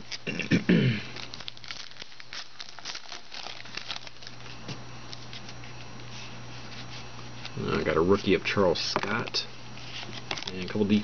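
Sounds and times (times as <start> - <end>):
card pack wrapper crinkling and tearing: 0.0 - 0.3, 1.1 - 5.6, 7.4 - 11.0.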